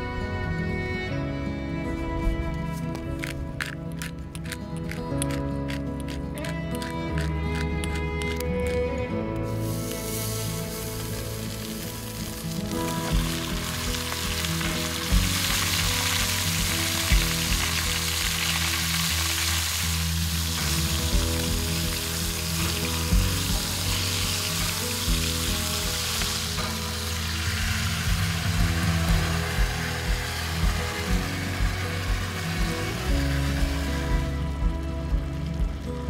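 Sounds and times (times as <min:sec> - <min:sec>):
meat sizzling in a pot: 0:09.5 - 0:35.8.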